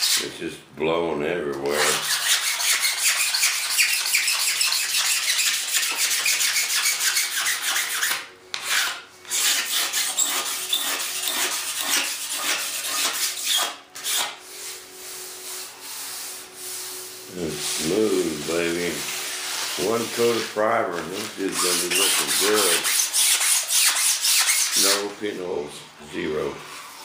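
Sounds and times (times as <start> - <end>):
razor blade scraping resin: 1.7 - 14.4, 21.2 - 25.1.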